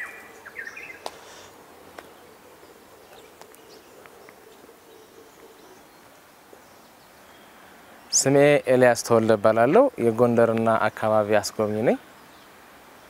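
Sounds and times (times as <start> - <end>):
bird chirps: 0.0 - 8.4.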